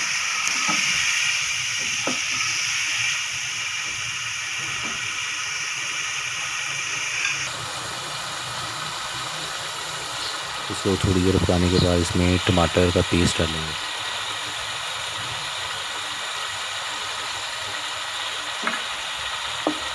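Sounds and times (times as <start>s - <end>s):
sauce sizzling in a pan: 0.0s - 19.9s.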